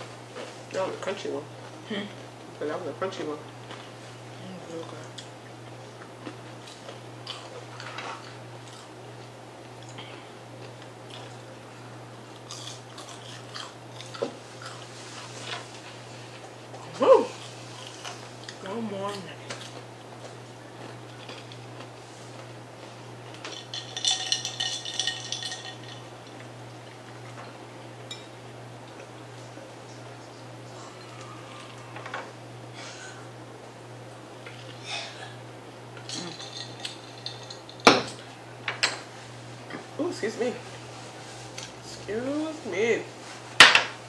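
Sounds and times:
steady low hum: 0:00.0 - 0:44.0
crunchy chewing: 0:04.6 - 0:11.6, 0:12.3 - 0:23.5
ice cubes clinking in a glass: 0:23.5 - 0:26.1, 0:36.1 - 0:37.9.

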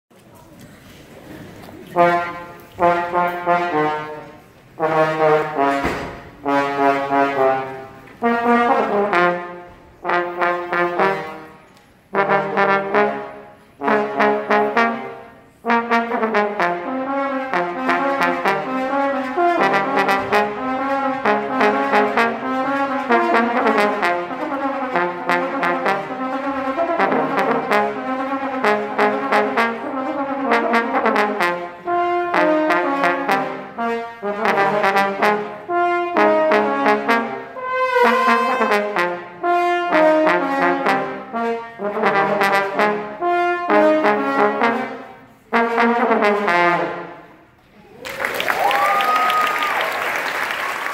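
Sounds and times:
trombone trio playing: 0:01.7 - 0:47.4.

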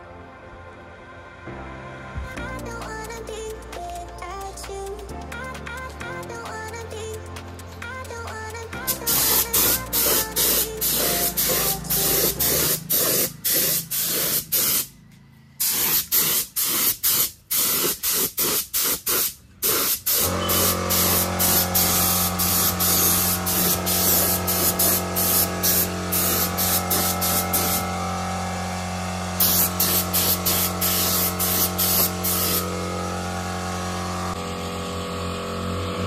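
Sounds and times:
spray paint hissing: 0:06.4 - 0:14.9, 0:15.6 - 0:28.0, 0:29.2 - 0:32.8.

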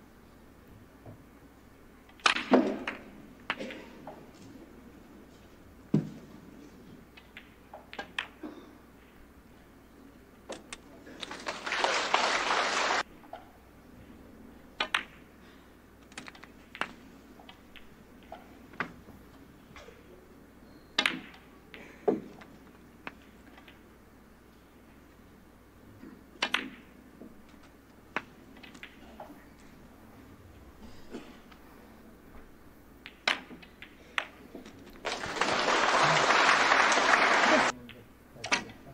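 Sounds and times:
snooker balls clicking: 0:07.1 - 0:08.4, 0:16.0 - 0:19.0, 0:21.0 - 0:23.9, 0:26.3 - 0:29.7, 0:33.0 - 0:37.7
audience applause: 0:11.2 - 0:13.0, 0:35.0 - 0:37.7.

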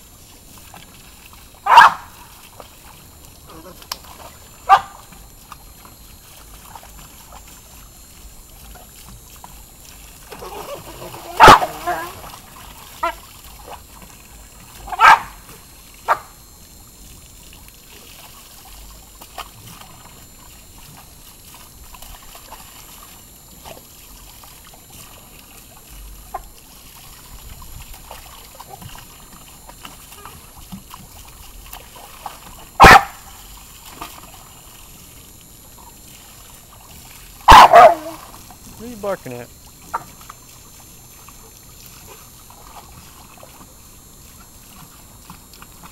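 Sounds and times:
hose water splashing in pool: 0:00.0 - 0:45.9
dog barking: 0:01.6 - 0:02.1, 0:04.6 - 0:05.0, 0:11.3 - 0:12.2, 0:14.9 - 0:15.4, 0:16.0 - 0:16.3, 0:32.8 - 0:33.2, 0:37.5 - 0:38.2
dog yipping: 0:01.7 - 0:02.1, 0:10.4 - 0:12.2, 0:14.9 - 0:15.4, 0:32.8 - 0:33.2, 0:37.5 - 0:38.2.

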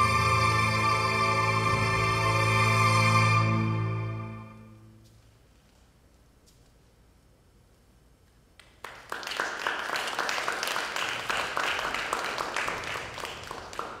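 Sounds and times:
audience applause: 0:08.8 - 0:14.0.

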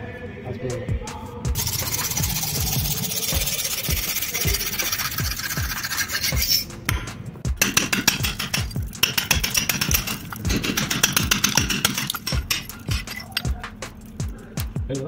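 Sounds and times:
background music with beat: 0:00.5 - 0:15.0
metal blade rasping on plaster: 0:03.0 - 0:06.8, 0:07.6 - 0:13.5.

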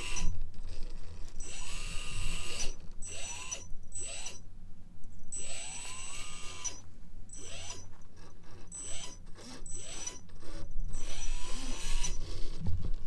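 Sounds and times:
electric motor whining: 0:00.0 - 0:04.5, 0:05.3 - 0:13.0.

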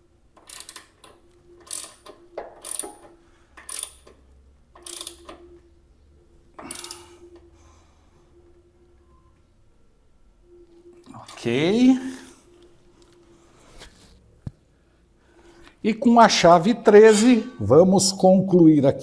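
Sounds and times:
ratchet wrench clicking: 0:00.4 - 0:04.2, 0:04.8 - 0:05.4, 0:06.6 - 0:07.0.

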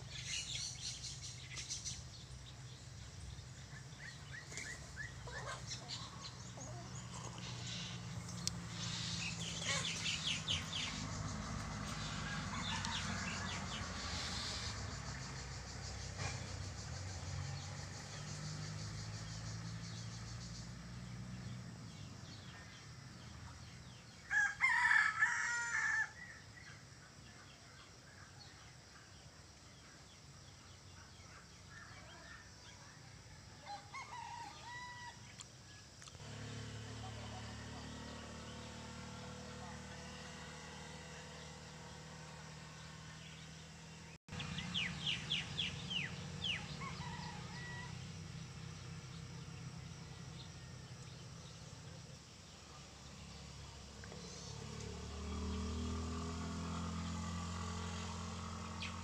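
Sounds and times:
rooster crowing: 0:12.0 - 0:14.0, 0:24.2 - 0:26.4, 0:33.6 - 0:35.3, 0:45.9 - 0:48.2.

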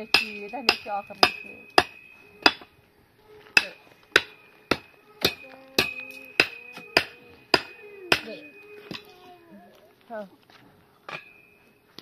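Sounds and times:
metal being struck ringing: 0:00.0 - 0:02.8, 0:03.5 - 0:09.2, 0:11.1 - 0:11.8.

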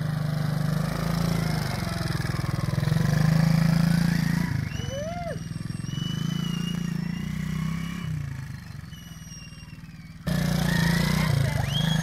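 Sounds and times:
quad bike engine running: 0:00.0 - 0:12.0.

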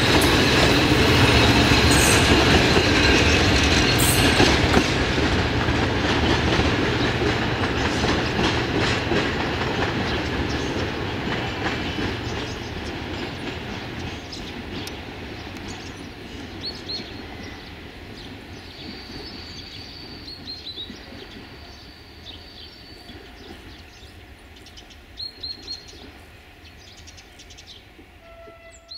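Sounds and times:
train rolling rumble: 0:00.0 - 0:28.9
small birds chirping: 0:09.9 - 0:28.0.

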